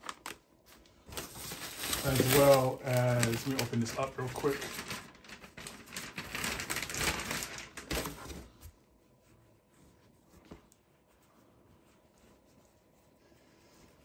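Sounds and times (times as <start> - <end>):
packaging rustling: 0.0 - 8.7.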